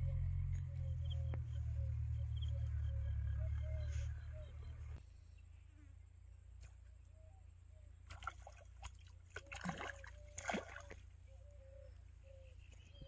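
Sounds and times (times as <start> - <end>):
fish splashing at water surface: 8.1 - 11.1.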